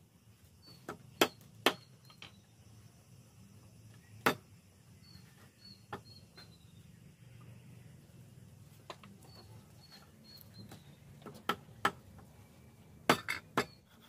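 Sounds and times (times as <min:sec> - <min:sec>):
cleaver chopping on wooden block: 0:00.9 - 0:01.9, 0:04.2 - 0:04.4.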